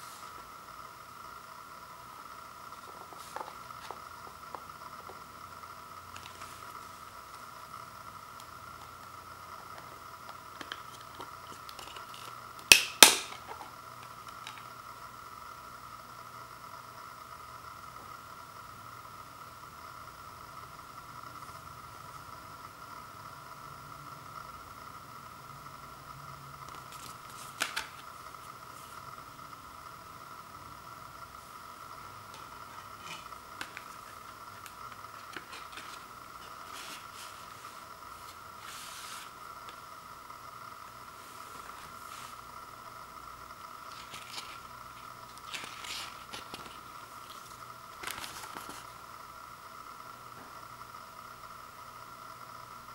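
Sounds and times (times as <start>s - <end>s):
faint steady whine: 0.0s - 52.9s
cardboard rustling: 32.4s - 39.4s, 45.3s - 49.0s.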